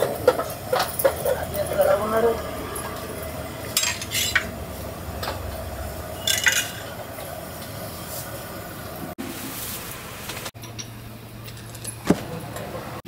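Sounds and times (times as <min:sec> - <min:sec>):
ladles clinking against pots: 0:00.0 - 0:01.8, 0:03.7 - 0:04.6, 0:06.2 - 0:07.1
steady background noise: 0:00.0 - 0:13.0.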